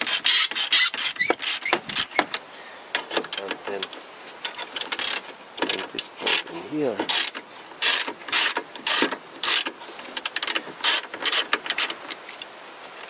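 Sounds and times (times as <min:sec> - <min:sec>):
hand ratchet clicking: 0:07.1 - 0:12.0.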